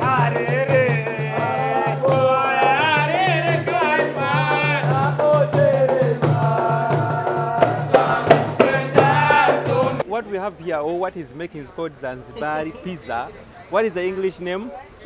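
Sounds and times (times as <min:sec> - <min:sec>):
men singing together: 0:00.0 - 0:10.0
frame drums: 0:00.0 - 0:10.1.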